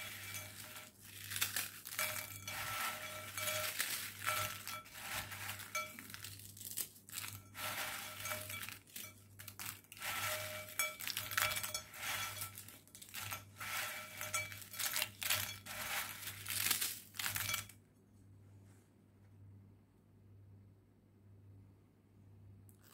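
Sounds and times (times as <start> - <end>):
biscuits crunching: 0.0 - 17.7
pieces clinking against bowl: 0.0 - 17.7.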